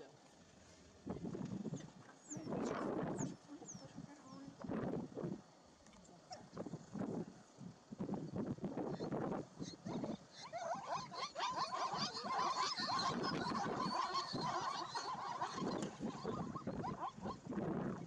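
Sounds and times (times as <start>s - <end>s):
high animal calls: 8.9s - 17.5s.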